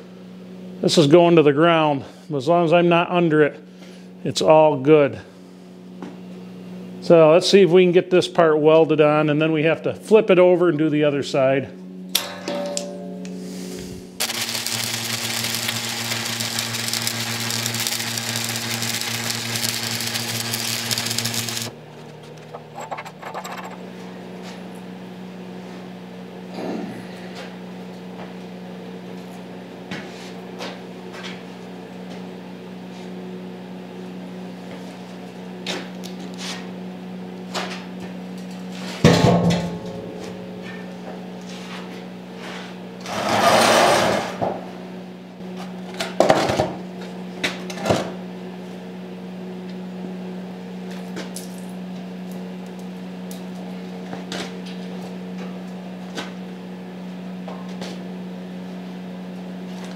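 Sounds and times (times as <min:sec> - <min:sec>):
steady machine hum: 0:00.0 - 0:59.9
loud metal clank: 0:12.1 - 0:13.3, 0:39.0 - 0:40.6.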